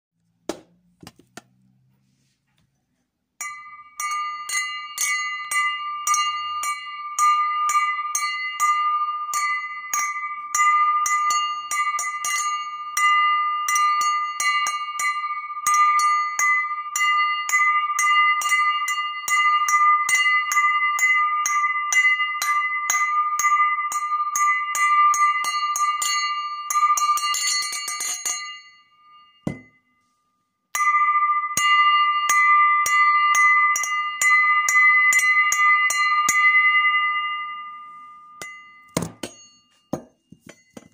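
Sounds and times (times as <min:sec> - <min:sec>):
glass rolling and ringing on table: 0:03.4 - 0:30.2, 0:30.8 - 0:40.9
glass rim tapping and rattling: 0:24.8 - 0:28.7, 0:29.5 - 0:29.8, 0:38.4 - 0:40.9.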